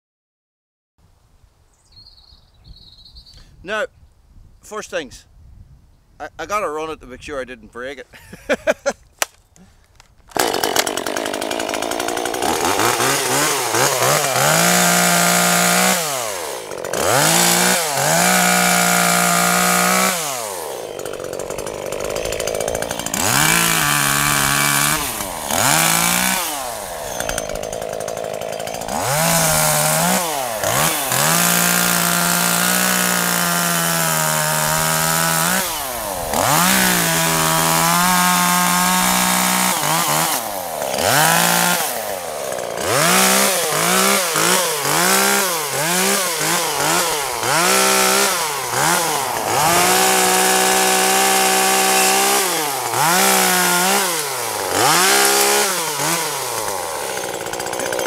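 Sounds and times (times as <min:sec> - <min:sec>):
starter cord pulls: 0:09.2 - 0:13.1
chainsaw cutting branches: 0:10.0 - 0:58.0.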